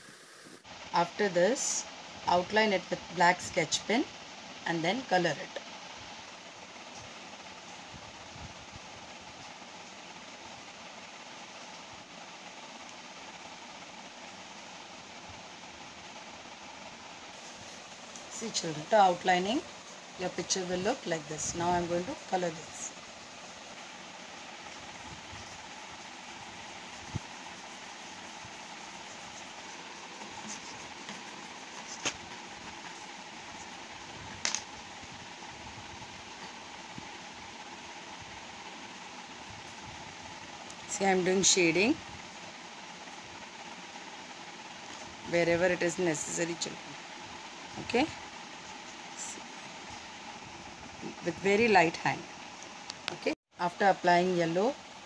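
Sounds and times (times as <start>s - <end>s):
steady background hiss: 0.0s - 55.0s
crayon rubbing on paper: 25.3s - 33.9s.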